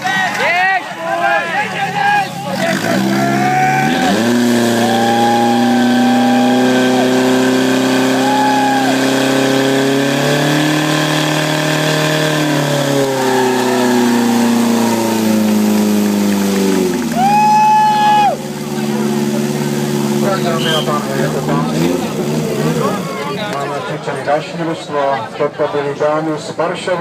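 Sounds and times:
pump engine running at high revs: 2.4 - 23.5.

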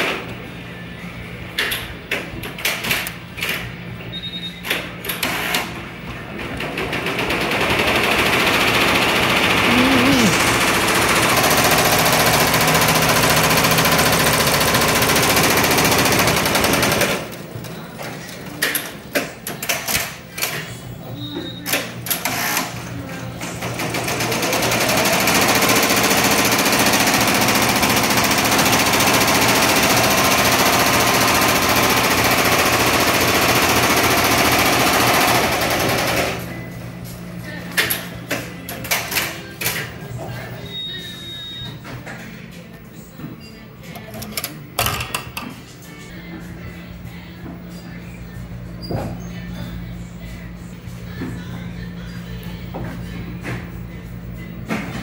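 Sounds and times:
embroidery machine stitching: 7.0 - 17.4, 23.6 - 36.4.

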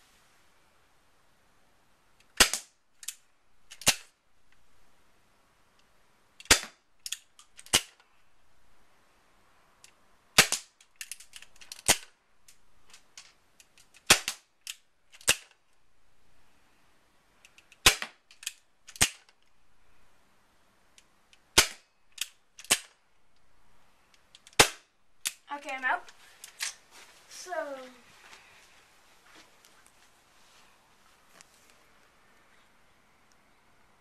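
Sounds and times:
airsoft revolver snapping: 2.2 - 4.1, 9.8 - 12.1, 13.7 - 15.6, 17.5 - 19.3, 21.4 - 23.0.

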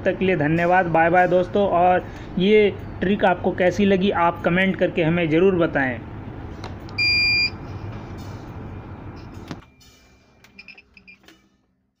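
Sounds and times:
high-pitched buzzer beep: 7.0 - 7.6
faint short beeps: 10.5 - 11.3.

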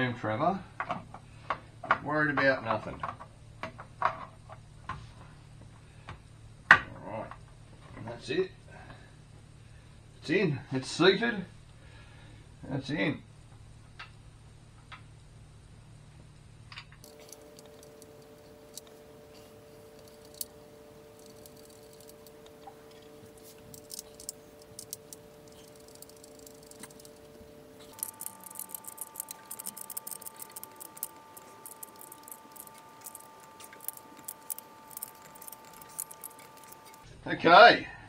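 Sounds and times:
faint two-tone hum: 0.0 - 38.0
small metallic clicks and rattles: 16.8 - 18.9, 20.0 - 20.5, 21.2 - 37.1.

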